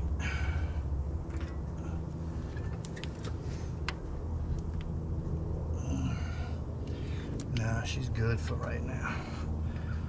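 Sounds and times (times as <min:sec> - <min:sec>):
steady low hum: 0:00.0 - 0:10.0
light clicks and taps: 0:07.4 - 0:07.7.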